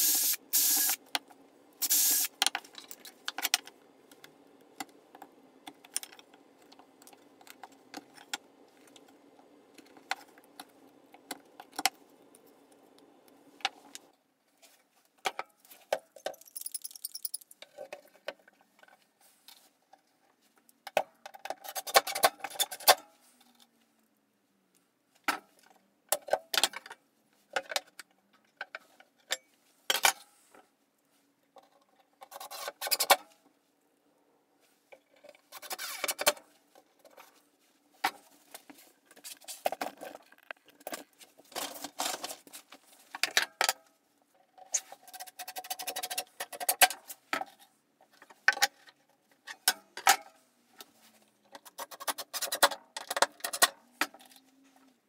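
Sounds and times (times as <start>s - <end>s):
tools and screws clattering: 15.3s - 18.9s.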